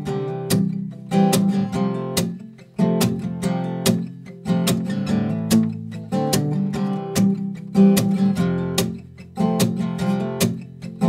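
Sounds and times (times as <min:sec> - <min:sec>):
acoustic guitar strumming: 0:00.0 - 0:11.0.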